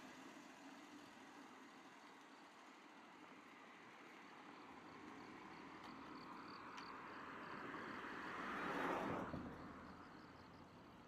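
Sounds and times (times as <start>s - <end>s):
car passing by: 3.3s - 11.0s.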